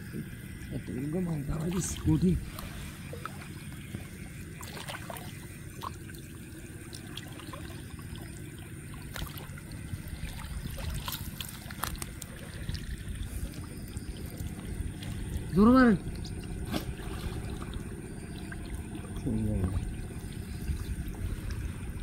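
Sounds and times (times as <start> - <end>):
shallow water sloshing: 0.1 - 22.0
small splashes: 1.5 - 22.0.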